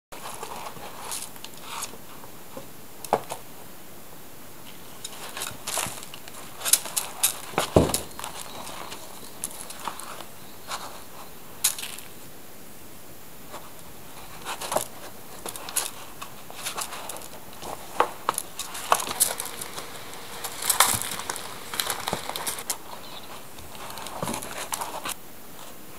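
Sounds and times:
paws scratching in cat litter: 0.2 - 2.3, 5.0 - 12.0, 13.6 - 25.2.

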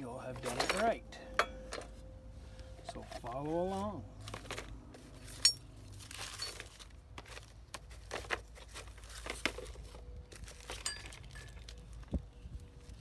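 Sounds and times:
small metal parts clinking: 0.3 - 1.9, 4.3 - 9.7, 10.5 - 11.8
crinkling rustle of gloves: 2.4 - 13.0.

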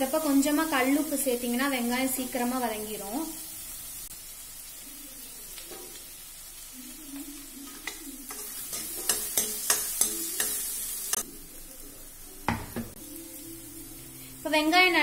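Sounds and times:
onions sizzling in oil: 0.0 - 15.0
ladle scraping and knocking pan: 7.8 - 10.8.

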